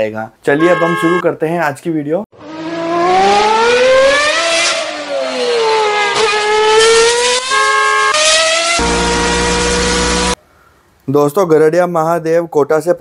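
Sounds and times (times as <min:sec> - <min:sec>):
car engine revving: 0:02.4 - 0:10.4.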